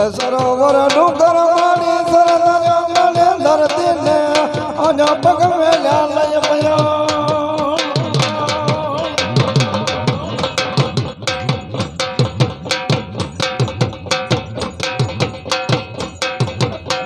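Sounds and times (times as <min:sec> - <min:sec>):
person singing: 0:00.0 - 0:11.0
fast drum rhythm: 0:00.0 - 0:17.0.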